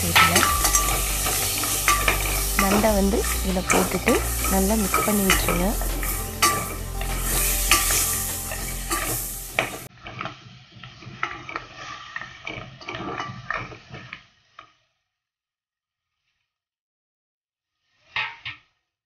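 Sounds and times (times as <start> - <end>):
wooden spatula stirring in pot: 0.0 - 9.9
sizzling: 0.0 - 14.9.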